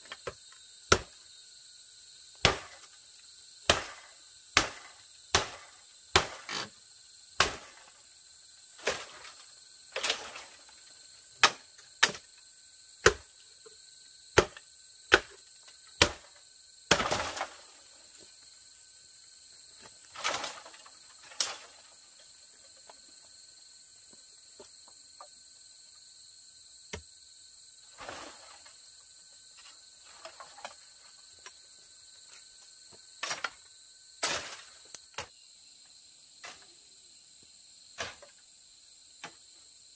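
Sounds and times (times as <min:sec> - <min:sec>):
insects droning: 0:00.0 - 0:39.9
machete chopping bamboo: 0:00.1 - 0:01.2, 0:02.4 - 0:03.0, 0:03.6 - 0:06.8, 0:07.4 - 0:07.9, 0:11.4 - 0:12.3, 0:13.0 - 0:13.3, 0:14.3 - 0:15.4, 0:16.0 - 0:17.6, 0:38.0 - 0:38.4.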